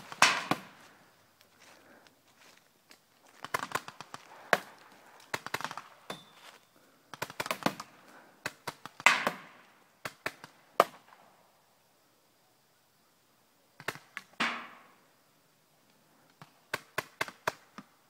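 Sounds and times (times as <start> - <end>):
paintball marker firing: 0.1 - 0.8.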